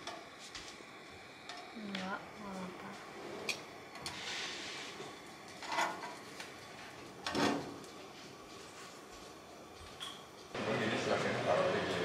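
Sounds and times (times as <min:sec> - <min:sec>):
brief hiss: 0:04.0 - 0:05.1
metal tongs scraping a griddle: 0:05.6 - 0:06.2, 0:07.2 - 0:07.7.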